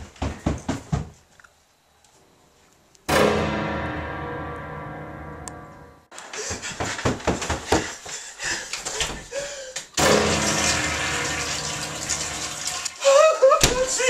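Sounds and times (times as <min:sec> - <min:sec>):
toilet flushing: 0:10.0 - 0:13.0.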